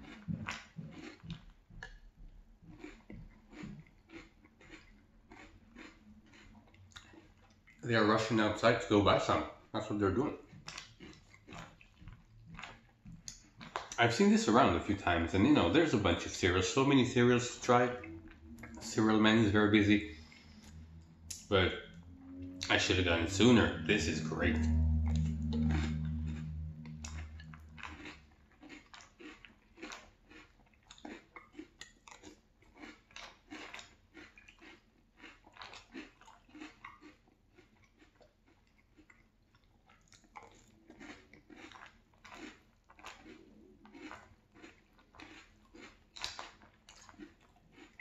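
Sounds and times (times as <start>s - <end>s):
chewing crunchy cereal: 0.0s - 21.7s, 22.6s - 48.0s
low hum: 14.9s - 28.5s.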